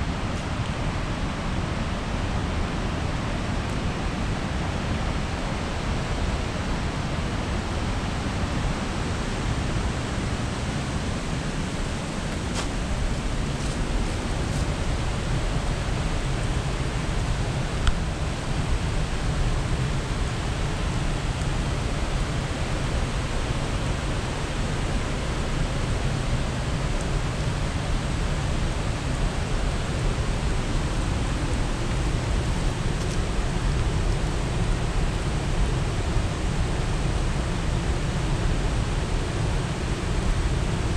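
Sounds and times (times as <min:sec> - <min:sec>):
rocky creek rushing: 0:00.0 - 0:40.9.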